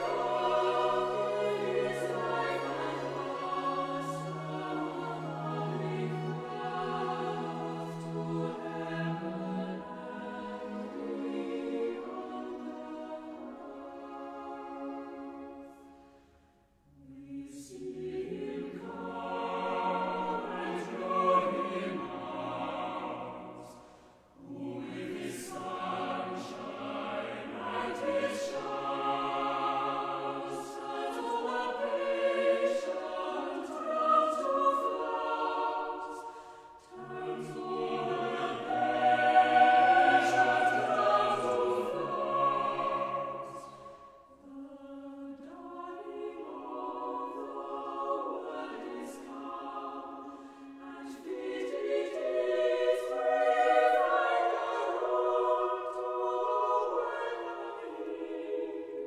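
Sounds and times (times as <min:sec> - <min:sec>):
choir singing: 0:00.0 - 0:59.0.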